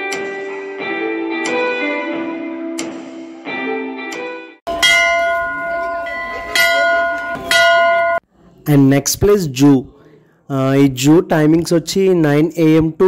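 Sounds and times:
background music with plucked notes: 0.0s - 7.6s
metal bell ringing: 4.7s - 8.2s.

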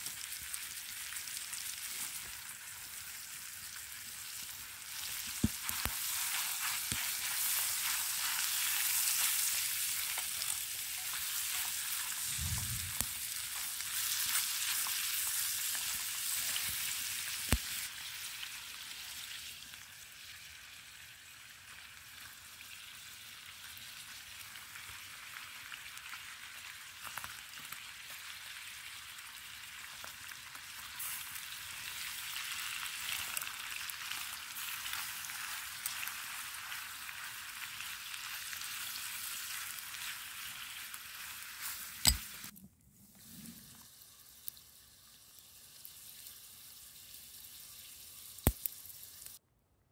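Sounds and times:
meat sizzling in pan: 0.0s - 42.5s, 43.7s - 49.4s
sharp click: 42.0s - 42.4s.

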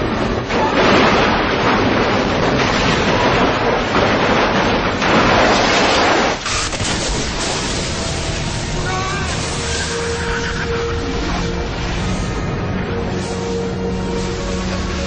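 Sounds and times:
explosion roar: 0.0s - 15.0s
thin rushing noise: 6.4s - 15.0s.

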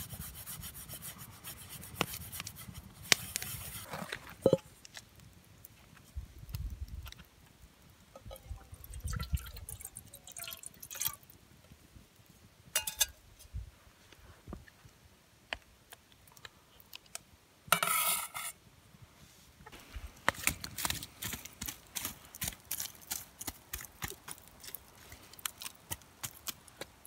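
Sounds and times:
liquid pouring into a pot: 8.2s - 11.3s.

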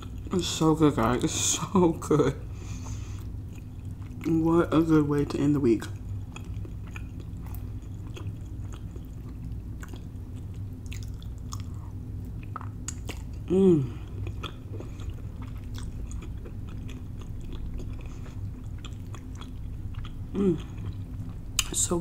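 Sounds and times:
chewing and mouth sounds: 0.0s - 0.6s, 2.8s - 22.0s
faint low room hum: 0.0s - 22.0s
person humming: 13.5s - 14.1s, 20.4s - 20.8s.

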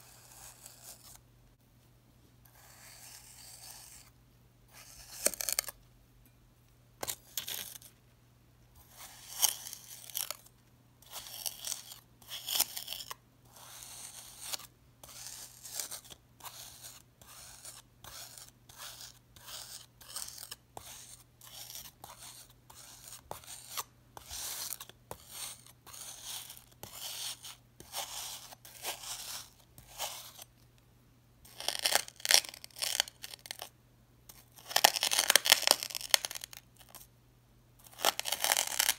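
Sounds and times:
knife scraping through crunchy sand: 13.7s - 30.4s.

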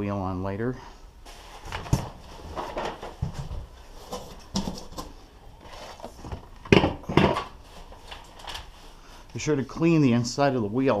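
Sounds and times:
cardboard packing rustling: 1.3s - 6.6s, 7.3s - 9.3s.

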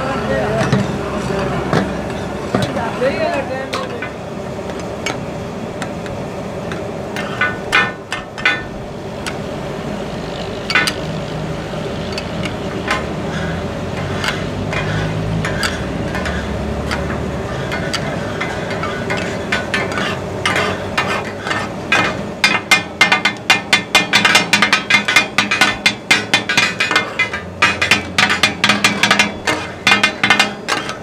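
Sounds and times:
steel spatulas clanking on griddle: 1.7s - 4.2s, 6.7s - 9.4s, 10.6s - 11.2s, 12.0s - 31.0s
meat sizzling: 8.8s - 31.0s.

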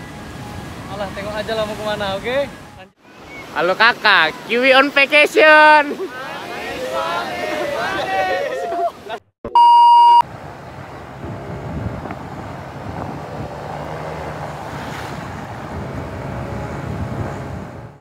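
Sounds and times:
moving vehicle road noise: 0.0s - 3.6s, 10.2s - 18.0s
test-tone beep: 9.5s - 10.2s
wind on microphone: 10.3s - 18.0s.

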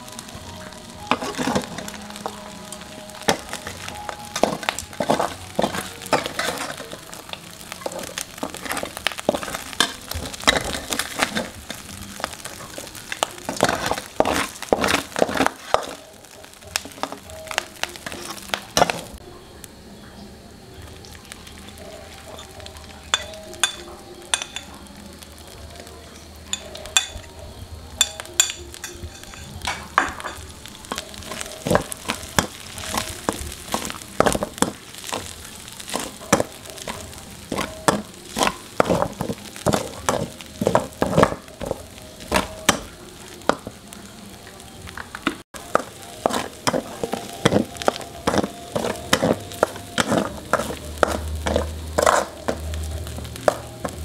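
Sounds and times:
food sizzling in oil: 0.0s - 54.0s
metal spatula scraping a wok: 1.0s - 19.2s, 28.0s - 42.9s, 45.6s - 54.0s.

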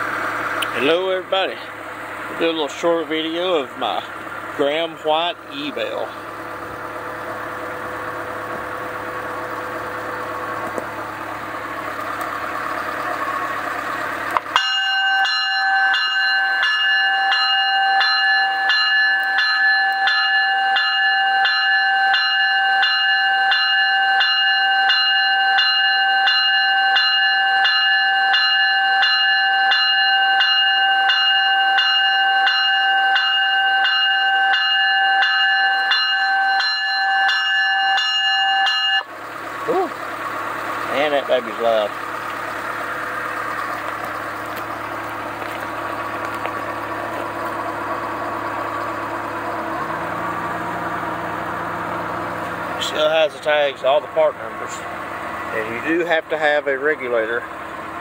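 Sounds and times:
locomotive bell ringing: 0.0s - 58.0s.

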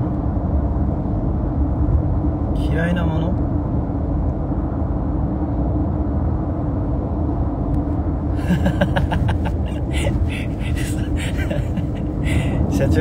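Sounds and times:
road and engine rumble in car: 0.0s - 13.0s
man laughing: 8.3s - 12.8s.

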